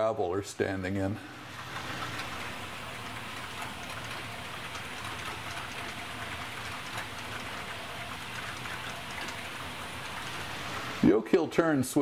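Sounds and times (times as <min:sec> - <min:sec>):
model train rolling on track: 0:00.0 - 0:12.0
wheels clicking over rail: 0:01.4 - 0:11.0.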